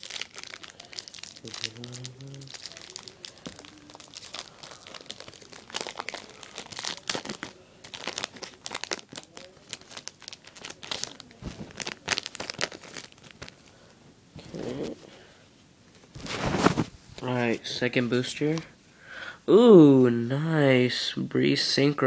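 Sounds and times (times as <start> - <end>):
plastic foil wrapper crinkling: 0.0 - 14.7.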